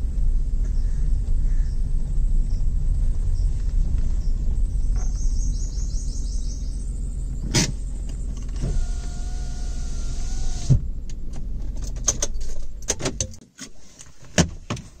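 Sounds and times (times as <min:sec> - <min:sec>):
car engine idling: 0:00.0 - 0:12.9
power window motor whining: 0:08.3 - 0:10.8.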